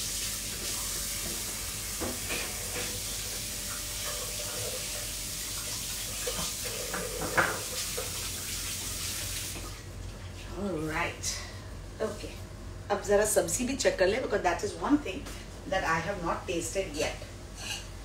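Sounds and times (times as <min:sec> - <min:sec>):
tap running into a sink: 0:00.5 - 0:09.8.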